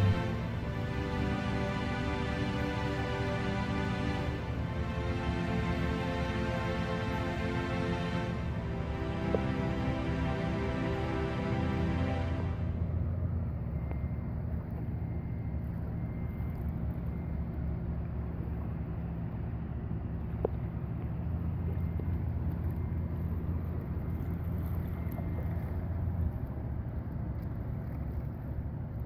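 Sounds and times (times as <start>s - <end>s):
low engine drone: 0.0s - 29.0s.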